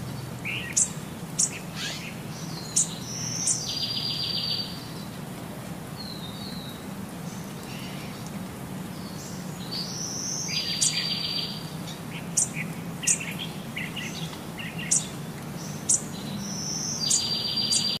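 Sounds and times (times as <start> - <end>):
songbird whistling and trilling: 0.5 - 4.8, 15.9 - 18.0.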